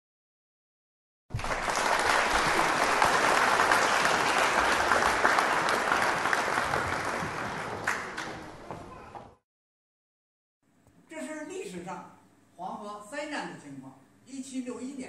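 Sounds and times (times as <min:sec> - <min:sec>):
audience applauding: 0:01.3 - 0:08.7.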